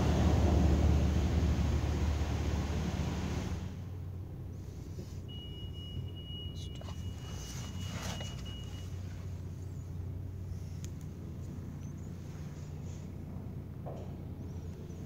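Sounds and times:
car wash machine hum: 0:00.0 - 0:05.4.

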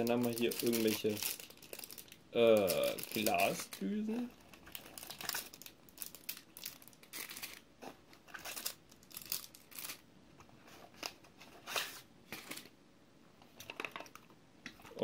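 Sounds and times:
plastic bags crinkling: 0:00.0 - 0:10.0.

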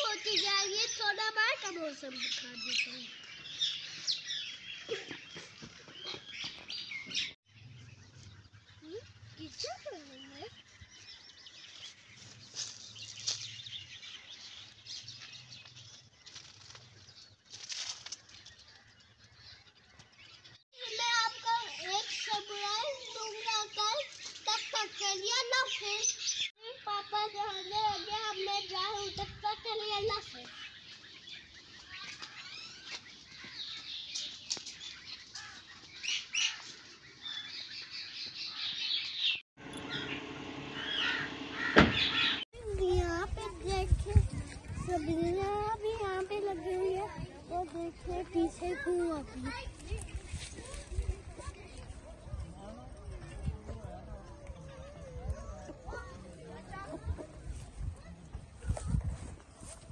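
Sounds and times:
small birds chirping: 0:00.0 - 0:59.9
rustling: 0:14.8 - 0:18.9.

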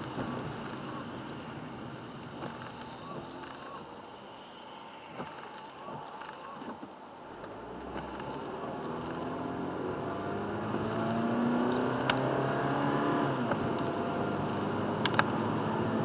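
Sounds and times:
tyre noise on wet road: 0:00.0 - 0:16.0
car engine accelerating: 0:07.3 - 0:16.0
sharp clicks: 0:15.0 - 0:15.4.

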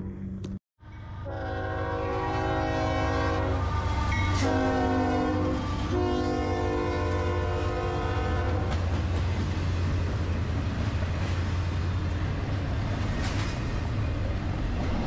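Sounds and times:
locomotive horn blasts: 0:01.2 - 0:08.8.

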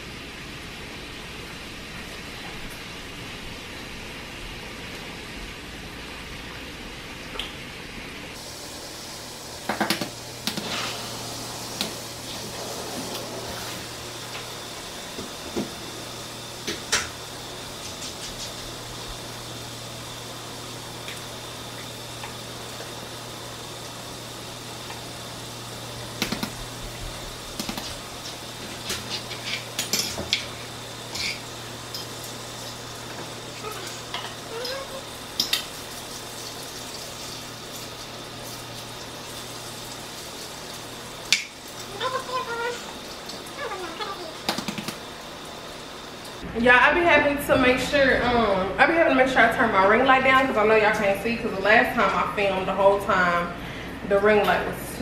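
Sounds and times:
bacon frying hiss: 0:08.3 - 0:46.5.

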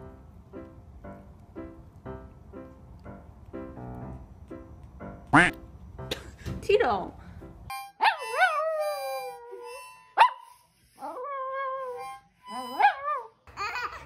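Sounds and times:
harmonica notes: 0:07.7 - 0:11.0, 0:11.8 - 0:13.0
small dog howling: 0:08.0 - 0:09.7
dog yelp: 0:11.8 - 0:13.3.

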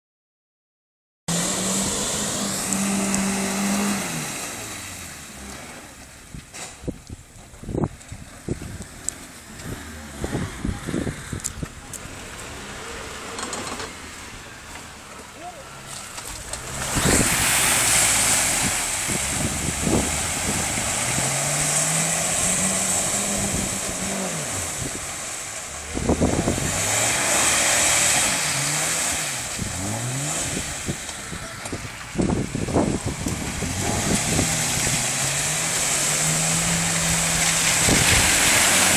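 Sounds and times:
car engine revving high: 0:01.3 - 0:06.0, 0:16.4 - 0:38.9
loud splashing in mud and water: 0:15.8 - 0:31.4, 0:32.3 - 0:38.9.

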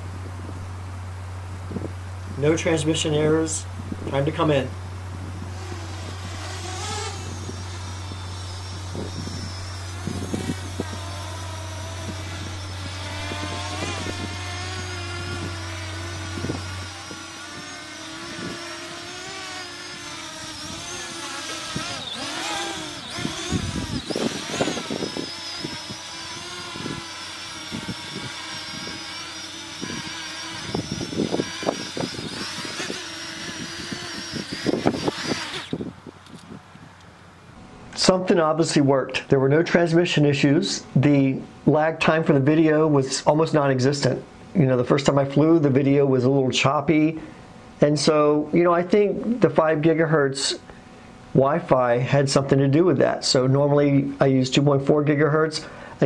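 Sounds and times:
low rumbles: 0:00.0 - 0:37.6
drone propellers whining: 0:00.0 - 0:38.1
steady low hum: 0:00.0 - 0:56.0.

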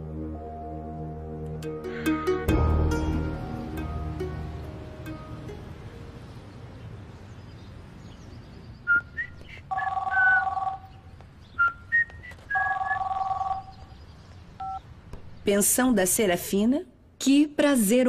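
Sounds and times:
telephone ringing: 0:09.7 - 0:10.9, 0:12.6 - 0:13.8.

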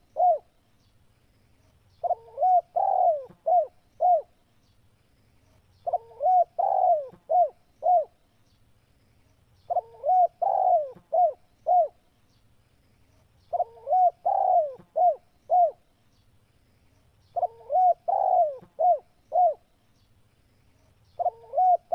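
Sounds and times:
dove cooing: 0:00.0 - 0:00.5, 0:02.0 - 0:04.4, 0:05.8 - 0:08.2, 0:09.7 - 0:12.0, 0:13.5 - 0:15.8, 0:17.4 - 0:19.7, 0:21.2 - 0:21.9.

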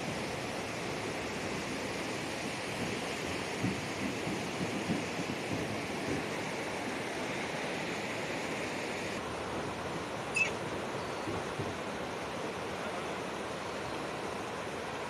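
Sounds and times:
river rushing over rocks: 0:00.0 - 0:15.0
high chirp: 0:10.3 - 0:10.6.

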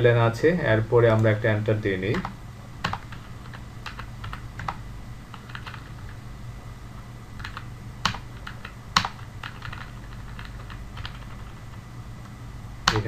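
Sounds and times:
computer keyboard keystrokes: 0:02.1 - 0:06.2, 0:07.4 - 0:11.6.

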